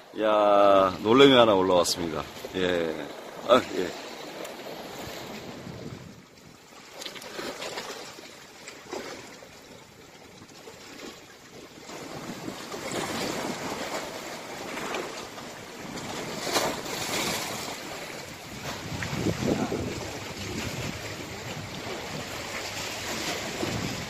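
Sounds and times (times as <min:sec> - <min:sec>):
sea waves breaking on shore: 0:00.0 - 0:24.0
wind buffeting microphone: 0:04.8 - 0:06.6, 0:15.8 - 0:24.0.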